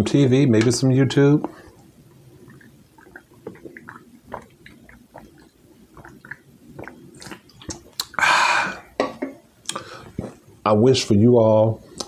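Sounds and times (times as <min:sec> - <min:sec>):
man gulping a drink: 0:01.7 - 0:10.4.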